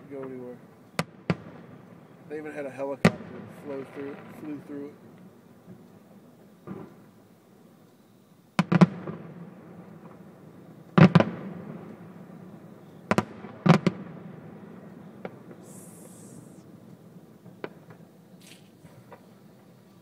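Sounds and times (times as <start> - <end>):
firework shells bursting: 14.8 - 19.8.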